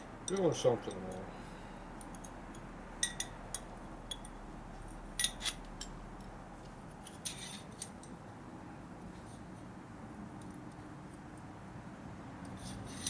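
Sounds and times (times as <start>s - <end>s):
metal parts clinking: 5.2s - 5.6s.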